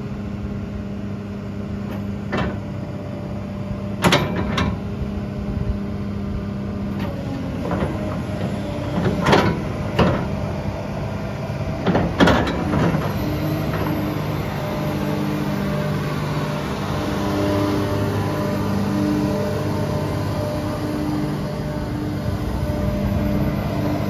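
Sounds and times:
diesel engine idling: 7.4 - 24.0.

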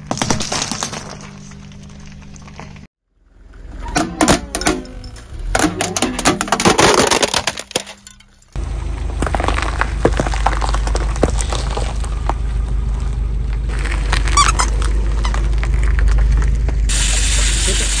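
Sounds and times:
plastic toy cracking under tyre: 6.3 - 8.0
tyre rolling low rumble: 8.4 - 16.9
peppers crunching and popping: 9.2 - 16.9
short squeak: 14.2 - 15.4.

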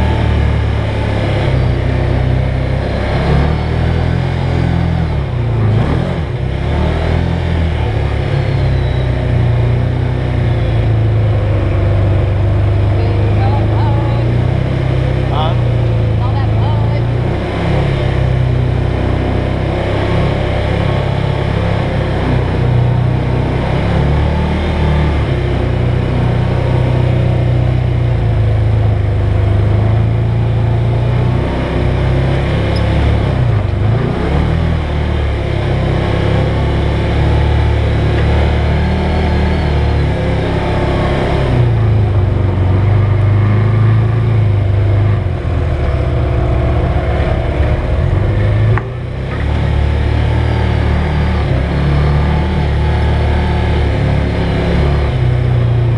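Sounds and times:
off-road vehicle engine: 0.0 - 55.9
road and body noise: 0.0 - 55.9.

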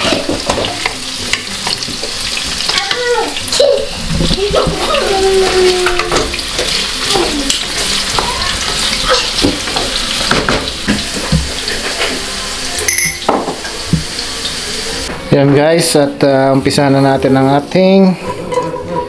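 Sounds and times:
carrots sizzling in oil: 0.0 - 15.1.

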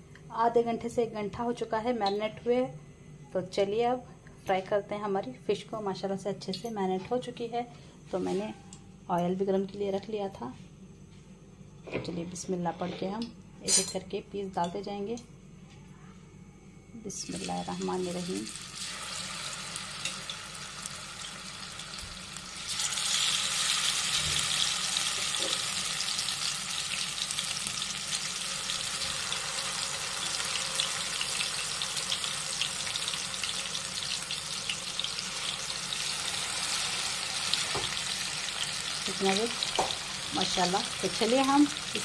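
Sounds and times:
fish sizzling in hot oil: 18.0 - 42.0.

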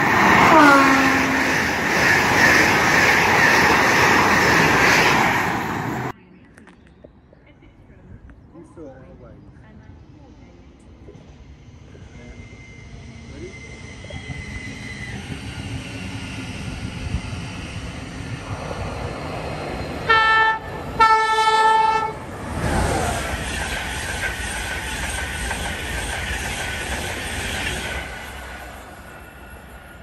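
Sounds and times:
train wheels rushing on rail: 0.0 - 6.2, 11.0 - 30.0
train horn: 0.4 - 1.7, 20.0 - 22.3.

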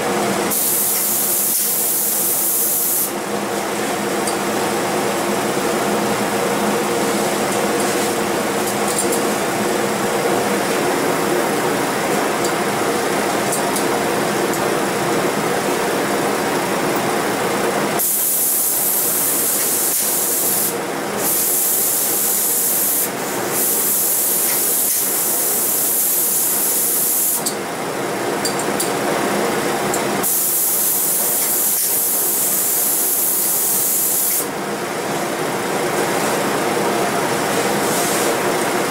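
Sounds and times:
spray gun hissing: 0.5 - 3.2, 18.0 - 27.4, 30.2 - 34.5.

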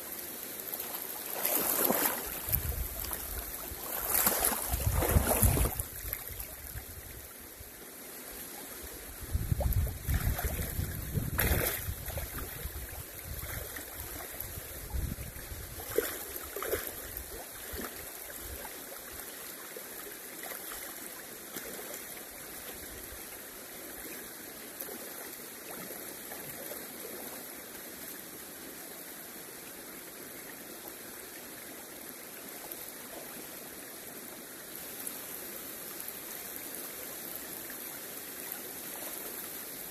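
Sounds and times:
close bursts of water noise: 0.0 - 39.9
river flowing over stones: 0.0 - 39.9.

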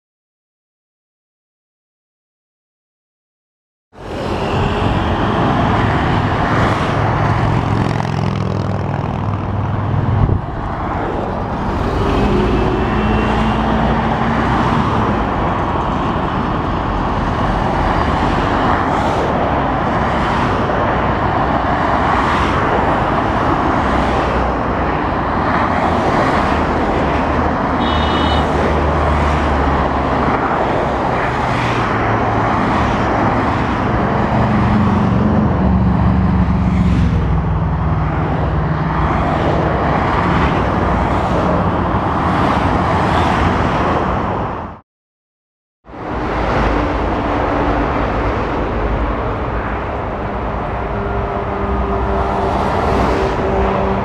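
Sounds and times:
heavy motorway traffic: 3.9 - 44.8, 45.8 - 54.0.

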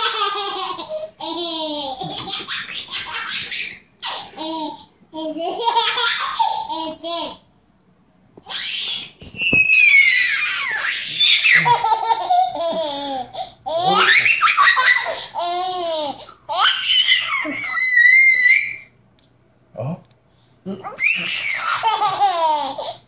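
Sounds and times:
baby laughing: 0.0 - 7.5, 10.1 - 17.9, 20.8 - 23.0
baby squealing: 8.5 - 12.0, 13.7 - 15.7, 16.5 - 18.9, 20.8 - 22.9.

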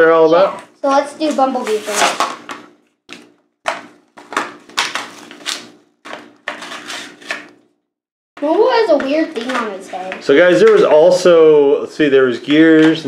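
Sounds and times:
blister packaging tearing: 4.4 - 5.7.

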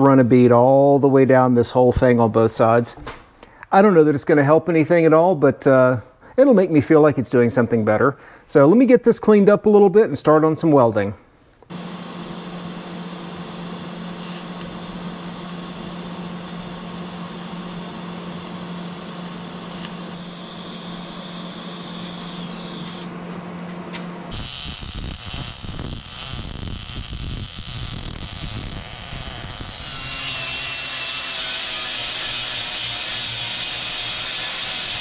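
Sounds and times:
welding crackling sizzle: 11.7 - 23.0, 24.3 - 35.0
welder humming and whining: 11.7 - 35.0.

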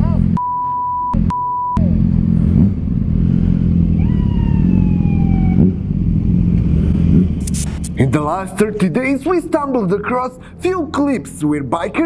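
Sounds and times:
censor bleeps: 0.4 - 1.9
motorcycle engines idling: 1.8 - 12.0
long falling tone: 3.3 - 6.9.

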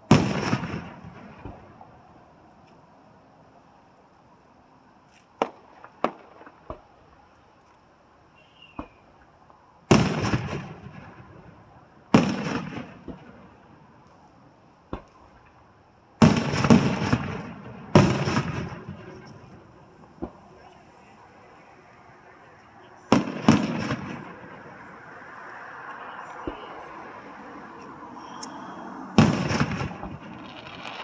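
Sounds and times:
fireworks booms with rumbling echo: 0.0 - 2.3, 5.4 - 7.0, 9.8 - 14.0, 14.9 - 15.6, 16.2 - 20.8, 23.0 - 25.1, 29.2 - 31.0
fireworks cracking: 0.0 - 2.3, 5.2 - 7.2, 9.9 - 14.3, 14.9 - 31.0.

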